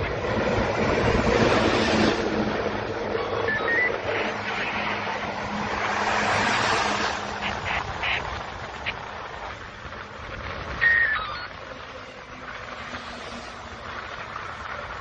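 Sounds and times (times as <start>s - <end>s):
road traffic passing: 0.0s - 15.0s
short descending beep: 3.2s - 4.0s.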